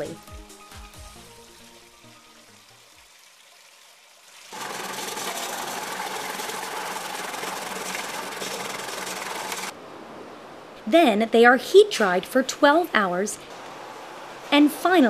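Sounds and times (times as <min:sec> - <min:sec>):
vegetable slicing machine running: 0:04.5 - 0:09.7.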